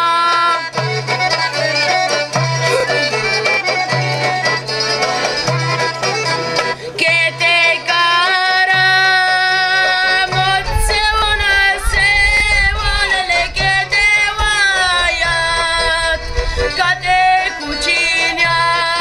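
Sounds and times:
accordion: 0.0 - 19.0
long-necked lute: 0.0 - 19.0
person singing folk song: 0.0 - 19.0.

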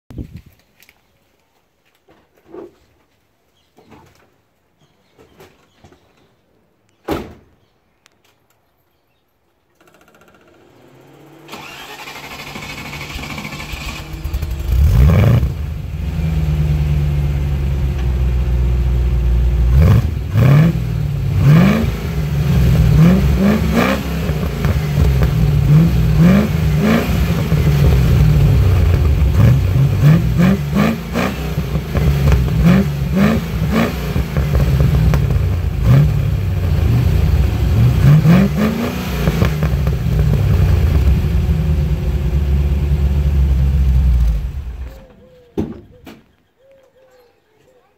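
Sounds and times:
engine starting and idling: 9.8 - 15.8
engine revving in short blips: 10.4 - 16.5.

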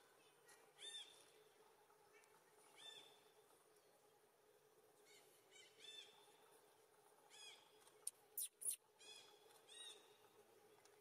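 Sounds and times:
faint bird chirps: 7.3 - 10.2.

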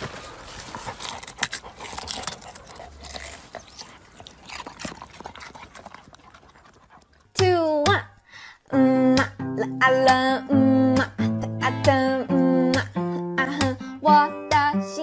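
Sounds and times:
dog digging and snuffling: 0.0 - 7.4.

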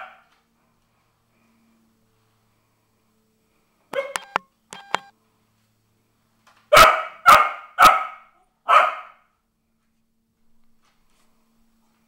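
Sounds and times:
dog barking: 3.9 - 4.3, 6.7 - 9.3.

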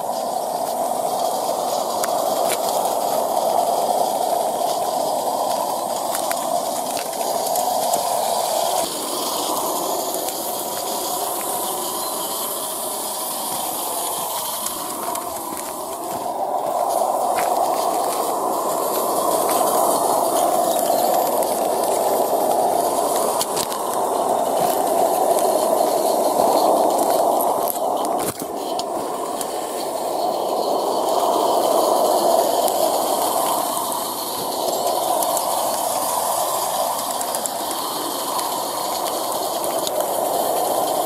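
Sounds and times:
hiss of steam and exhaust: 0.0 - 41.0
wheels running on track: 0.0 - 41.0.

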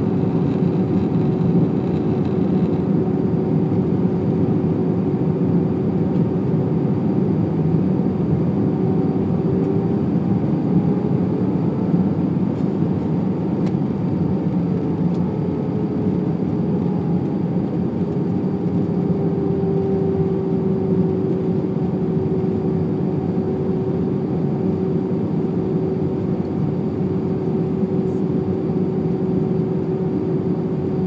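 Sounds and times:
airliner cabin engine rush: 0.0 - 31.0
constant hum: 0.0 - 31.0.

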